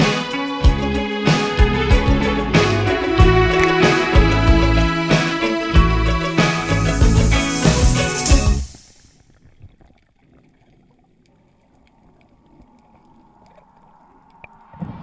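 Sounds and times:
background music: 0.0 - 9.0.

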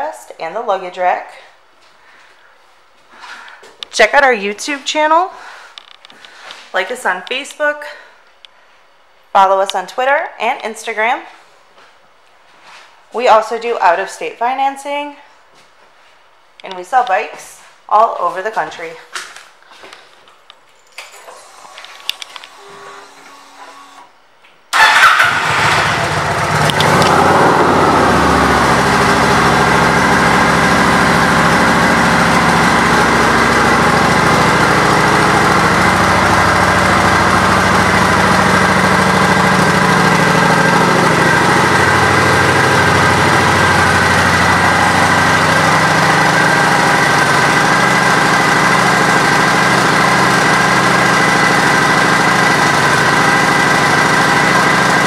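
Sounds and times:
motorcycle engine starting and idling: 21.0 - 24.1, 24.7 - 55.0.

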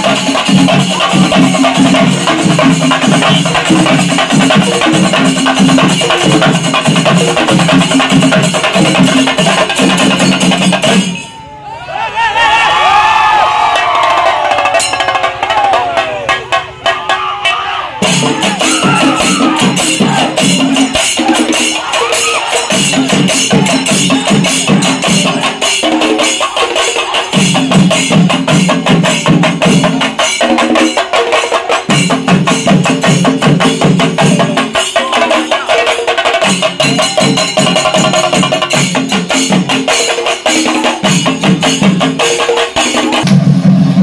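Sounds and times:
fast drum strokes: 0.0 - 11.2, 13.6 - 44.0
low pitched percussion part: 18.0 - 31.0, 36.4 - 44.0.

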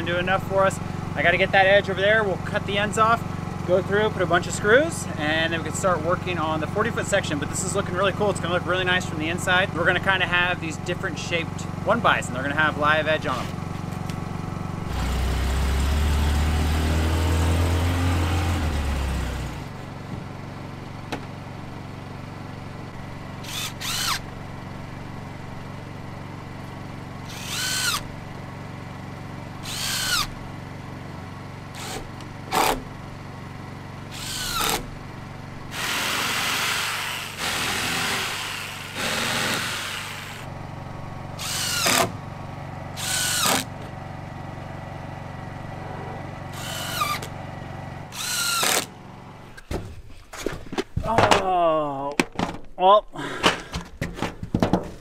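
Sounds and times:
vehicle engine rumbling: 0.0 - 55.0
cordless drill driving screws into wood: 23.4 - 24.2, 27.2 - 28.1, 29.6 - 30.4, 31.7 - 32.8, 34.1 - 34.9, 35.7 - 40.5, 41.4 - 42.2, 43.0 - 43.8, 46.5 - 47.3, 48.1 - 48.9.

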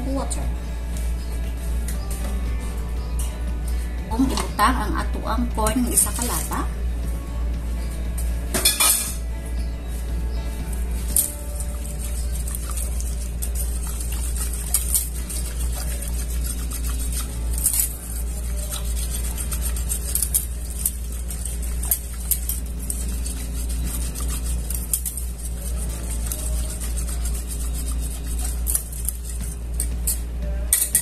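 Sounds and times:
steady low hum: 0.0 - 31.0
whisk stirring liquid in pot: 11.0 - 30.2
whisk clicking against metal: 11.1 - 31.0.

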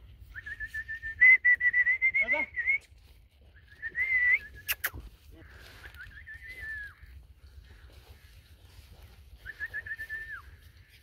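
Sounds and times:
person whistling: 0.3 - 2.9, 3.6 - 5.0, 6.0 - 7.0, 9.4 - 10.5.

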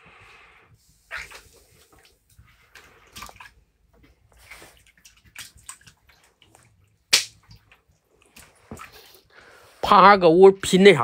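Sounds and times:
water splashing in a basin: 1.0 - 9.3.

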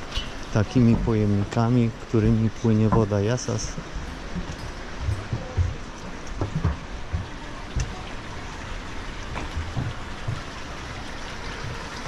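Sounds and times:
water rushing along a channel: 0.0 - 12.0
low thumps: 2.2 - 8.0, 9.3 - 10.8.

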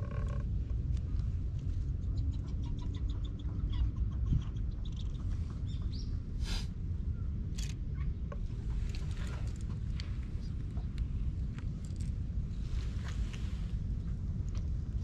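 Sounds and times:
low rumble: 4.2 - 15.0.

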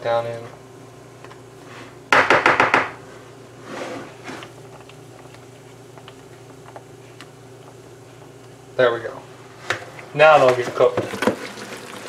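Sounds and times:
soft scrape: 3.6 - 4.4.

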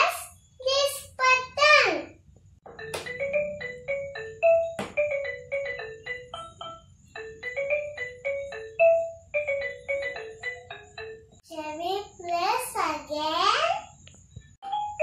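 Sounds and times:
electronic xylophone melody: 2.7 - 11.4, 14.6 - 15.0.

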